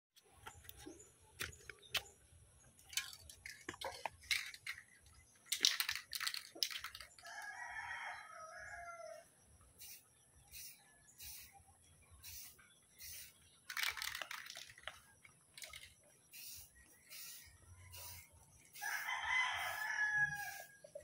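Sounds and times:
sharp clicks and scuffs: 0:00.2 - 0:02.2
rooster crowing: 0:07.2 - 0:09.3, 0:18.8 - 0:20.8.

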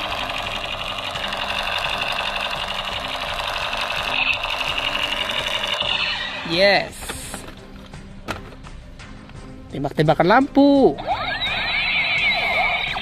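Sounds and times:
toy gun electronic rapid-fire: 0:00.0 - 0:06.4, 0:11.1 - 0:13.0.

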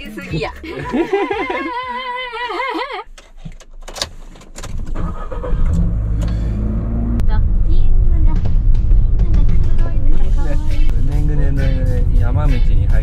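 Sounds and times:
man laughing: 0:00.2 - 0:03.1
van engine driving off: 0:04.8 - 0:13.0.

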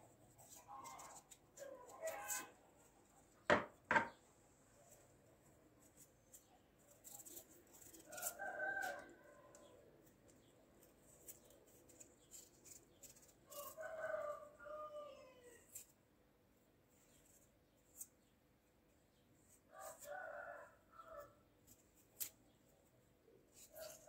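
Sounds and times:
faint rooster crowing: 0:07.8 - 0:10.4, 0:13.1 - 0:15.9, 0:19.7 - 0:21.5.

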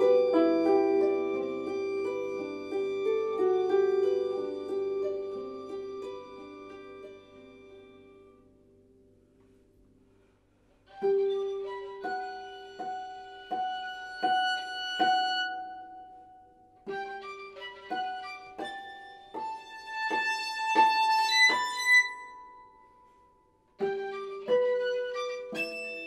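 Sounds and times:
plucked harp notes: 0:00.0 - 0:08.4
held violin notes: 0:00.0 - 0:08.6, 0:10.8 - 0:23.2, 0:23.8 - 0:26.0.

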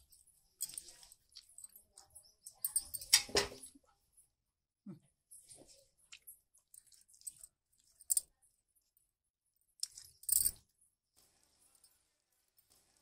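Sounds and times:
clinks and scrapes of handling meat: 0:00.0 - 0:04.3, 0:05.3 - 0:09.1, 0:09.7 - 0:13.0.

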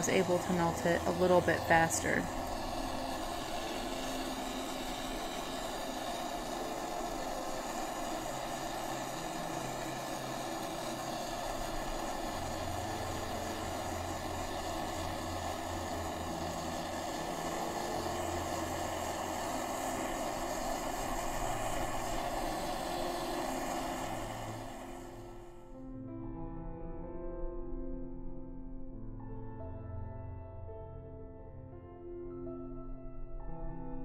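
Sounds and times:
torch flame hissing: 0:00.0 - 0:25.7.

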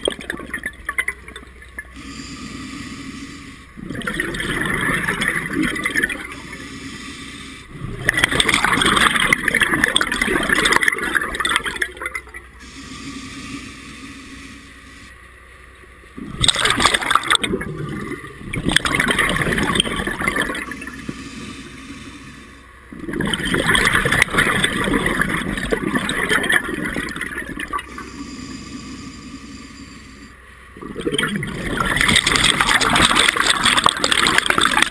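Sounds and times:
scuba regulator inhalation: 0:01.9 - 0:09.2, 0:12.6 - 0:15.2, 0:19.5 - 0:22.6, 0:26.0 - 0:34.9
scuba regulator exhaled bubbles: 0:03.8 - 0:06.6, 0:07.7 - 0:12.2, 0:16.2 - 0:21.2, 0:22.9 - 0:28.0, 0:30.8 - 0:34.9.

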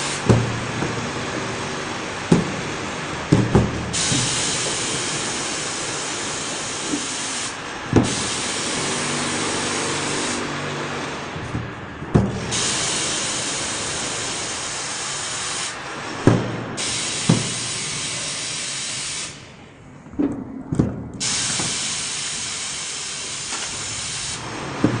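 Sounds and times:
loud steady hiss: 0:00.0 - 0:19.7, 0:21.2 - 0:25.0.

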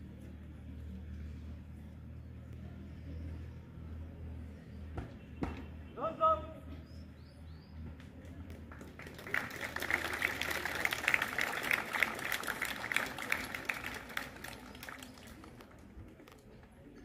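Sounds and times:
audience clapping: 0:08.5 - 0:15.9.

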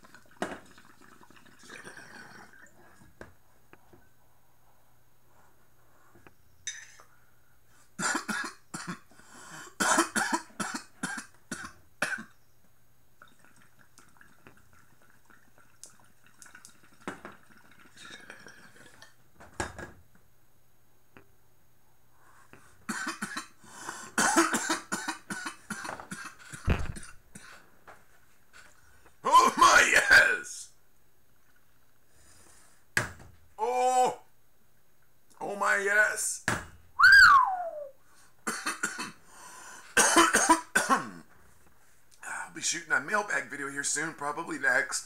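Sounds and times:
water gurgling through a bong: 0:00.0 - 0:03.0, 0:13.2 - 0:19.1
man coughing: 0:24.2 - 0:27.6, 0:40.0 - 0:41.2.

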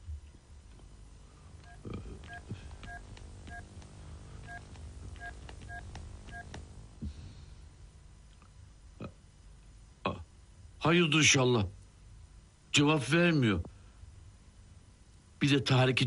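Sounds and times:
keypad tone beeps: 0:01.7 - 0:03.7.

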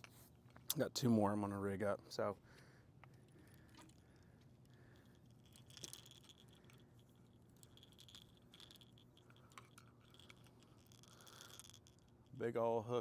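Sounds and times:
faint low hum: 0:00.0 - 0:13.0
fishing tackle clicks and rattles: 0:03.0 - 0:13.0.

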